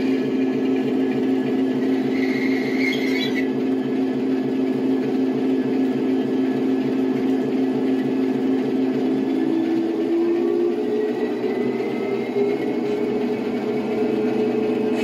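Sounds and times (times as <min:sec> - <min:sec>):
diesel engine idling: 0:00.0 - 0:15.0
high squeal: 0:01.8 - 0:03.5.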